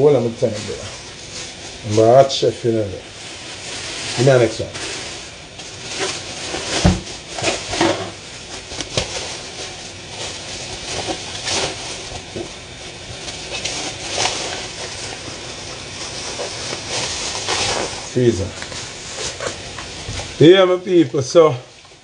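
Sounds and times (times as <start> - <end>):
plastic bag crinkling: 0.2 - 22.0
thump: 6.8 - 7.1.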